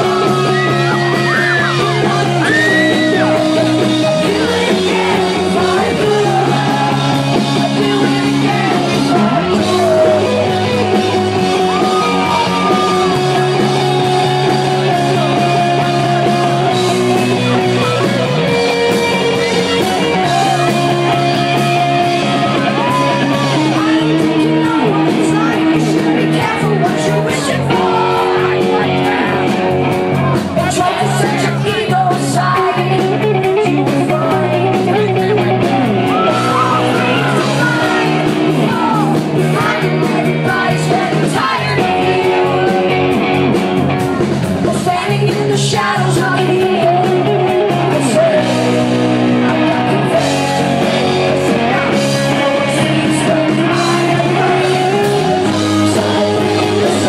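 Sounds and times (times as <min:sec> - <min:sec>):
rock band playing live: 0:00.0 - 0:57.0
woman singing into microphone: 0:30.7 - 0:35.6, 0:44.7 - 0:48.5.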